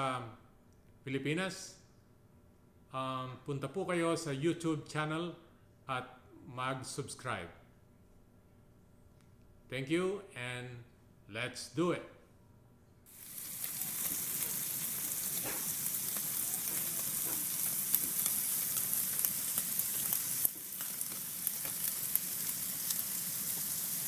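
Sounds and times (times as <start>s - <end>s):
food sizzling in hot oil: 13.1s - 24.0s.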